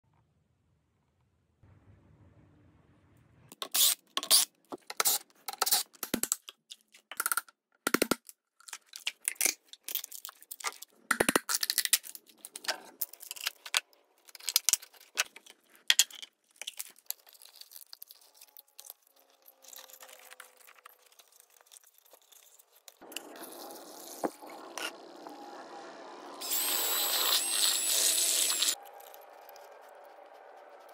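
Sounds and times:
tearing and crinkling: 8.6 - 11.0, 11.6 - 24.4.

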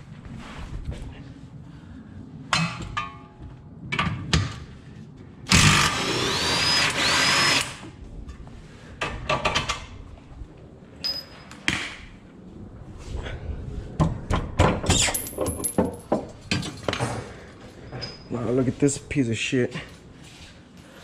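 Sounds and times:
cordless impact wrench: 5.5 - 7.8.

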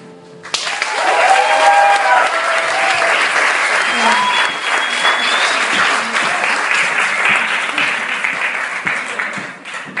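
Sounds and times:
audience applauding: 0.4 - 10.0.

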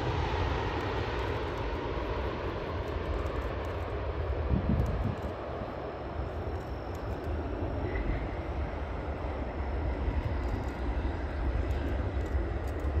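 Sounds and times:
jet engines rumbling and roaring: 0.0 - 13.0.

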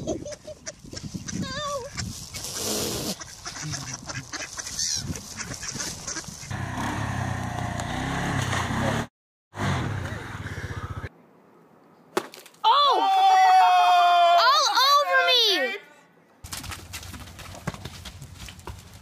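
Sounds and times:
ducks quacking: 0.2 - 6.6
atv engine running: 6.4 - 11.1.

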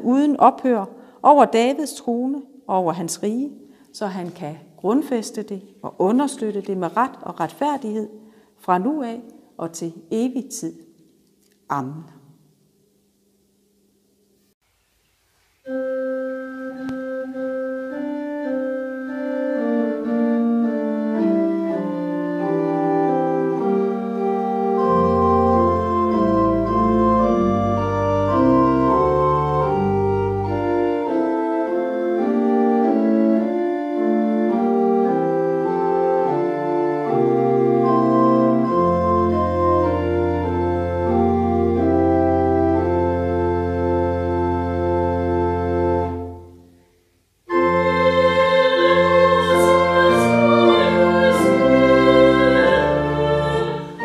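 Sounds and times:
pipe organ sustained chords: 15.6 - 46.8, 47.5 - 54.0
deep organ pedal bass notes: 15.7 - 46.6, 47.5 - 54.0.

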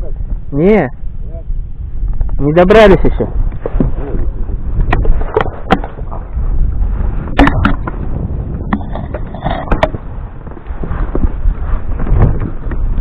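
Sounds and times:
low rumble on microphone: 0.0 - 13.0
camera handling knocks and rubbing: 4.8 - 6.3, 7.3 - 11.3.

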